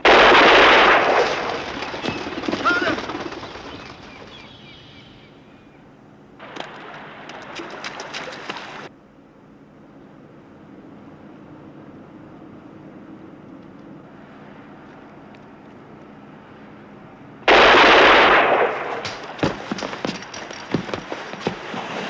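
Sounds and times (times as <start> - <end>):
rifle shot with echo: 0.0 - 1.8, 17.5 - 19.7
rapid crackling clatter: 0.0 - 4.5.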